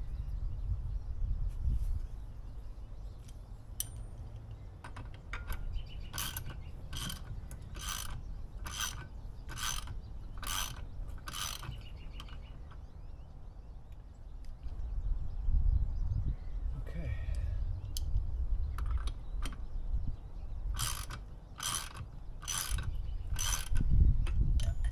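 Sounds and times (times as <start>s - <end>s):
ratchet wrench clicking: 4.8s - 12.4s, 20.7s - 24.6s.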